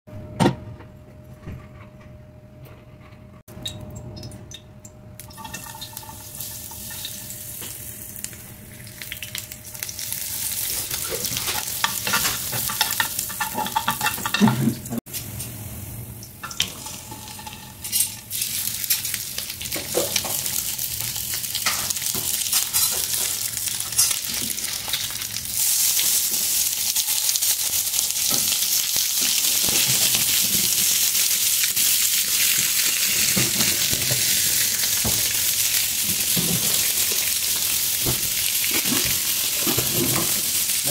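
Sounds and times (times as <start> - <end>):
oil sizzling in a frying pan: 5.2 - 14.4, 15.1 - 40.9.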